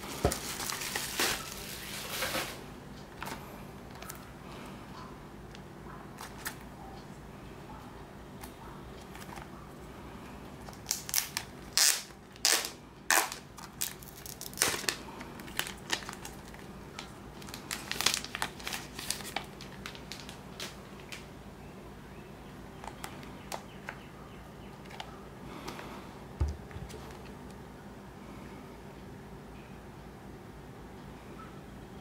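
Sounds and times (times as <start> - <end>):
plastic wrap crinkling: 0.0 - 2.6, 10.6 - 21.3.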